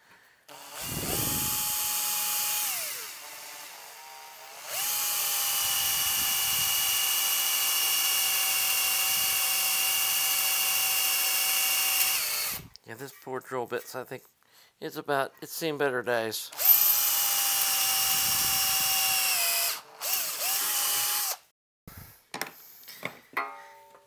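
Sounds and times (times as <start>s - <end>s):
power drill drilling metal: 0.5s - 12.7s, 16.5s - 21.5s.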